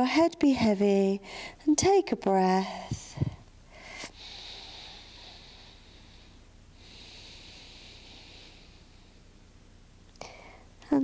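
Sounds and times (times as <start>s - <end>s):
woman breathing deeply: 1.2s - 1.6s, 2.6s - 9.3s, 10.2s - 10.8s.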